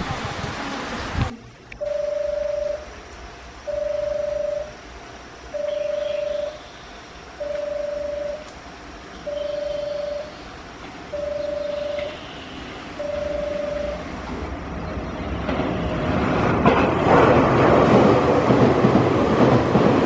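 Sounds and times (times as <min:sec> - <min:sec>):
electronic warning beeps: 0:01.8 - 0:02.8, 0:03.7 - 0:04.8, 0:05.5 - 0:06.6, 0:07.4 - 0:08.5, 0:09.2 - 0:10.4, 0:11.1 - 0:12.2, 0:13.0 - 0:14.0.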